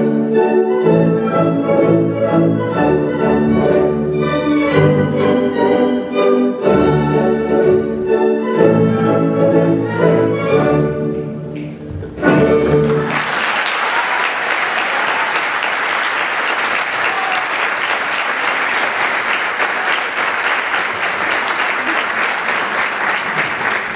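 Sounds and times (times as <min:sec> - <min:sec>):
audience applauding: 0:12.6 - 0:23.9.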